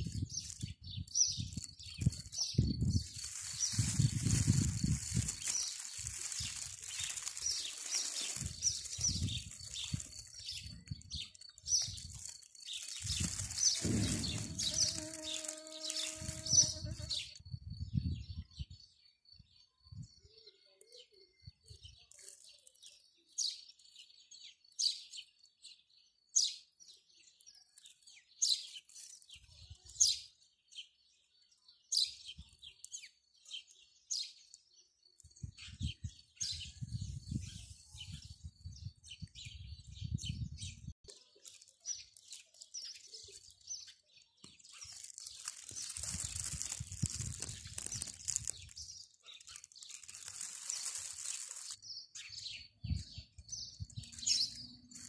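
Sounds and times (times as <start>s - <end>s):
wind on microphone: 0.0s - 5.5s, 8.4s - 12.2s, 13.0s - 15.2s, 16.2s - 18.8s, 35.3s - 41.0s, 46.0s - 49.0s, 52.7s - 54.5s
songbirds chirping: 0.0s - 55.0s.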